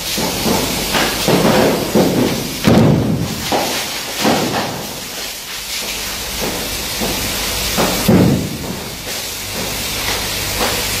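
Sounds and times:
steady hiss: 0:00.0 - 0:11.0
dull thuds: 0:00.2 - 0:04.9.

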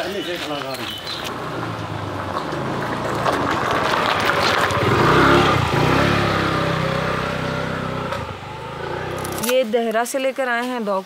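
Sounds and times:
scooter engine revving: 0:01.2 - 0:09.5.

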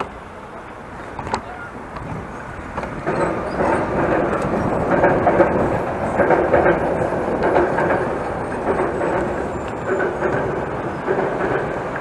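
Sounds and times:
train passing over bridge: 0:00.0 - 0:12.0.

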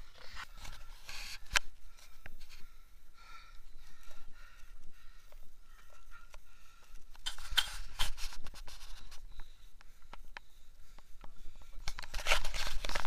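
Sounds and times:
scraping rubs against microphone: 0:00.0 - 0:02.7, 0:07.2 - 0:09.4, 0:11.7 - 0:13.0.

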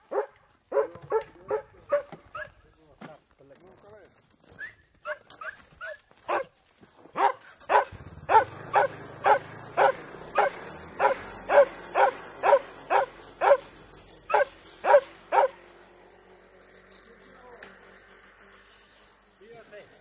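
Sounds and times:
dog barking: 0:00.0 - 0:02.5, 0:05.0 - 0:06.5, 0:07.2 - 0:13.7, 0:14.3 - 0:15.6.

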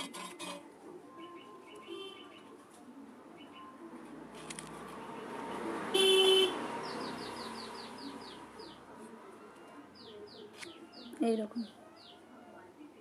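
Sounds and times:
vehicle passing by: 0:04.1 - 0:09.3
vehicle horn: 0:05.9 - 0:06.7.

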